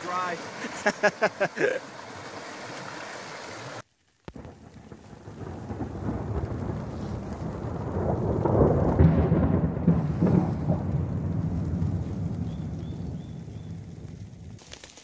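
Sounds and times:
rain pattering: 0.0s - 15.0s
thunder rumbling: 4.4s - 14.6s.

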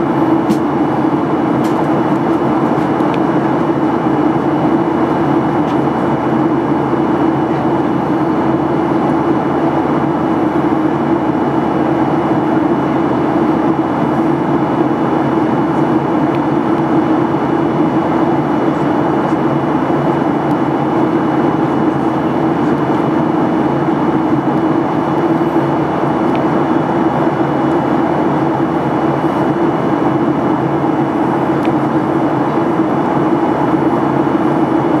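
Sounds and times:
jet engines droning: 0.0s - 35.0s.

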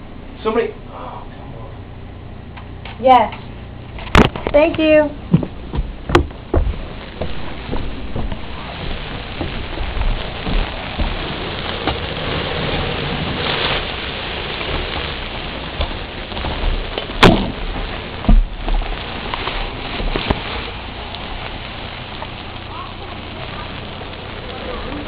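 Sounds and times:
hose water spraying on deck: 4.8s - 25.0s
sharp knock: 5.3s - 7.4s, 17.2s - 17.6s.

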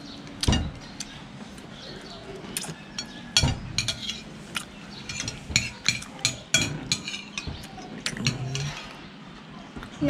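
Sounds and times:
metal spoon clinking on ceramic plate: 3.0s - 4.3s.

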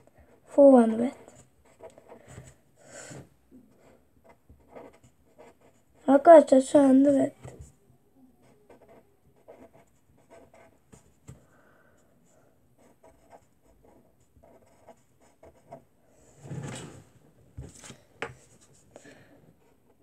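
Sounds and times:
pencil scratching on paper: 0.0s - 2.6s, 3.8s - 6.2s, 8.4s - 11.4s, 12.8s - 15.8s.

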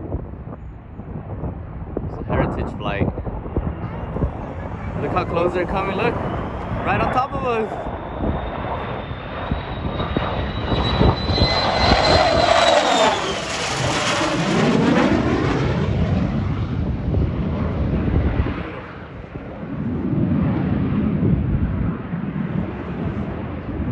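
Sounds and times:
jet engine roar with high whine: 0.0s - 23.9s.

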